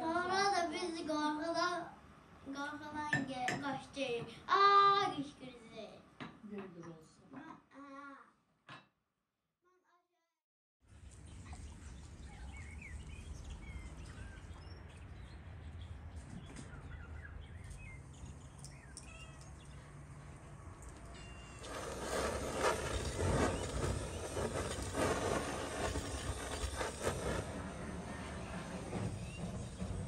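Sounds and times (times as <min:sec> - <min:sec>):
small birds chirping: 0:11.0 - 0:30.0
gas torch flame hissing: 0:21.6 - 0:30.0.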